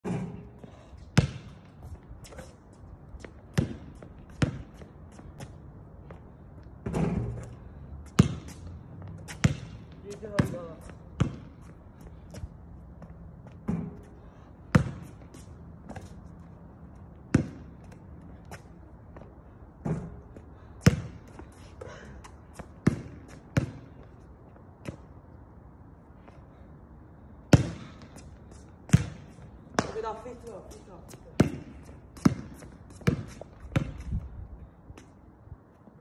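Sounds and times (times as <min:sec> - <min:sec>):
basketball bouncing on hard court: 0:01.2 - 0:01.7, 0:03.2 - 0:05.5, 0:08.1 - 0:08.6, 0:09.3 - 0:12.3, 0:14.7 - 0:16.1, 0:17.3 - 0:17.8, 0:20.8 - 0:21.4, 0:22.8 - 0:24.0, 0:27.5 - 0:28.2, 0:28.9 - 0:30.2, 0:31.1 - 0:34.3.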